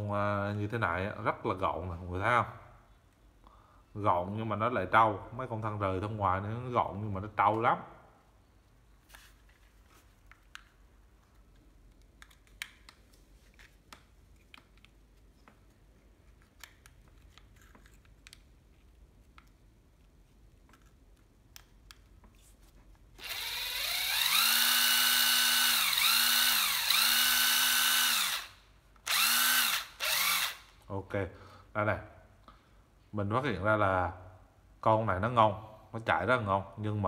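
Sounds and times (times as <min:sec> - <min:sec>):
cordless drill motor whine: 0:23.2 - 0:30.7.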